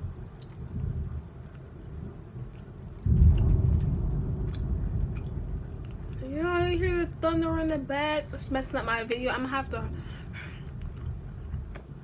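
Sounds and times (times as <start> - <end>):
quiet low rumble: 0.0 - 12.0
loud thunder rumble: 3.0 - 9.0.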